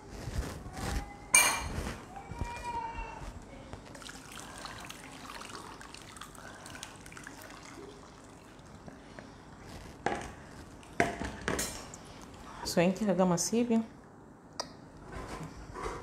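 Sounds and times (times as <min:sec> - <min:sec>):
liquid trickling into bowl: 0:03.9 - 0:08.9.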